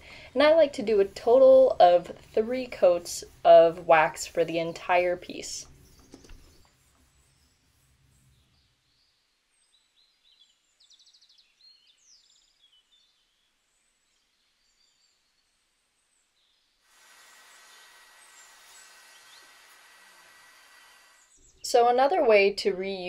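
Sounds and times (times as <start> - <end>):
distant birds chirping: 4.3 - 21.8.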